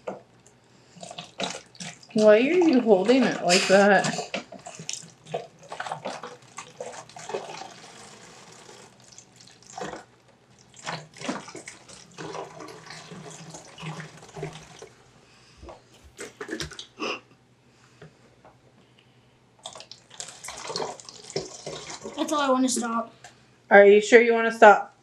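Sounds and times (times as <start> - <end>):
water pouring into plastic bottle: 1.0 - 15.0, 19.6 - 22.3.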